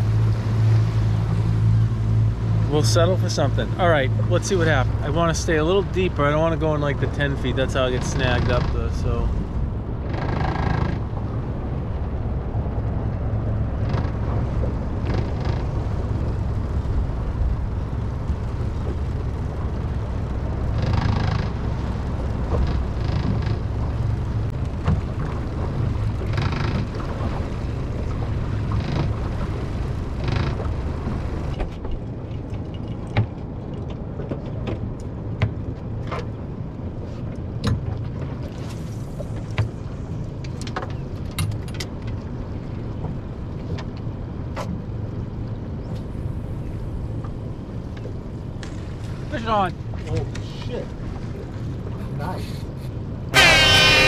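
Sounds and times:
boat engine rumble: 0.0s - 54.0s.

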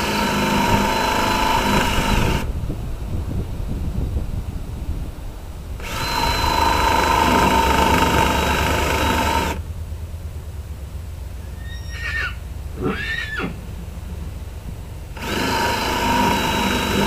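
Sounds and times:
power drill running: 0.0s - 2.5s, 5.8s - 9.6s, 15.1s - 17.0s
low rumble: 0.2s - 16.9s.

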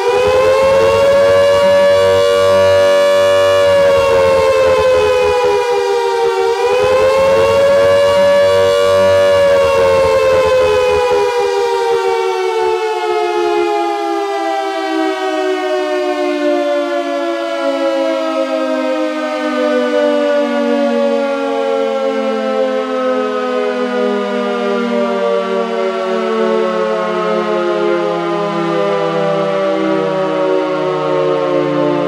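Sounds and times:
air-raid siren wailing: 0.0s - 32.0s.

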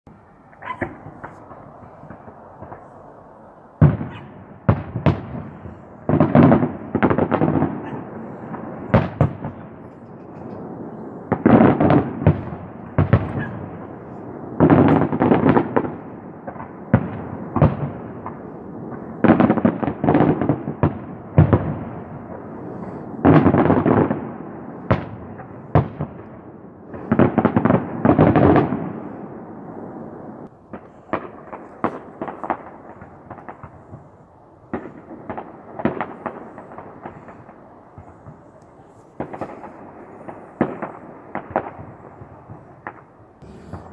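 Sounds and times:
fireworks bangs: 0.1s - 43.9s
rumbling tail of fireworks: 0.1s - 43.9s.

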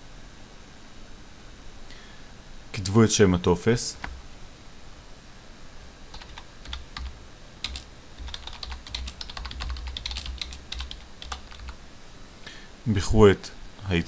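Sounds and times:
typing on computer keyboard: 6.1s - 11.8s.

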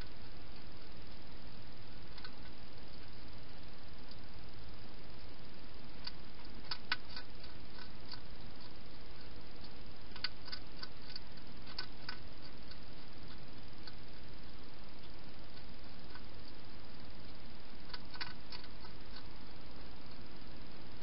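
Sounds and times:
steady hiss: 0.0s - 21.0s
hedgehog crunching food: 5.9s - 20.2s.

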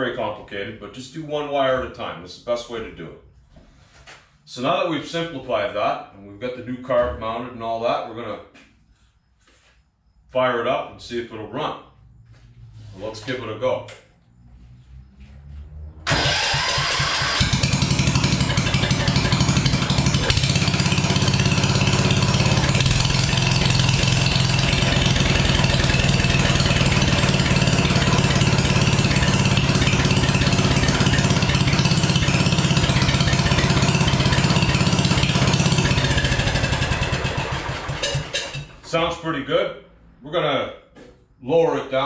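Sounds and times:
small engine running: 14.4s - 38.8s
engine starter cranking: 16.0s - 38.9s.

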